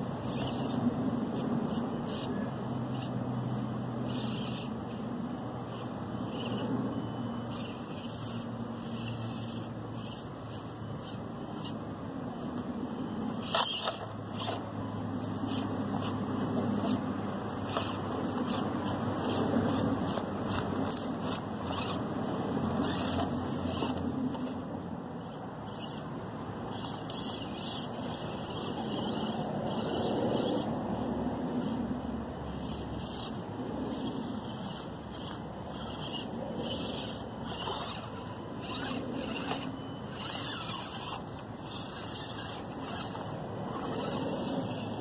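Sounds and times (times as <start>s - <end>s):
small electric motor whining: 0.0s - 45.0s
tyres clicking and scraping on stone: 15.2s - 22.0s.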